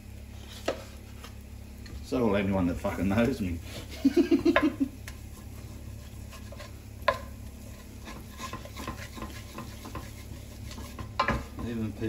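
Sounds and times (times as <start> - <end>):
wooden spoon scraping a pan: 0.3 - 1.4, 5.0 - 12.0.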